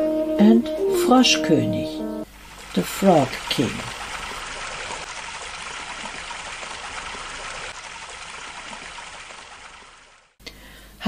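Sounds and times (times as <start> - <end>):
water trickling: 2.3 - 10.4.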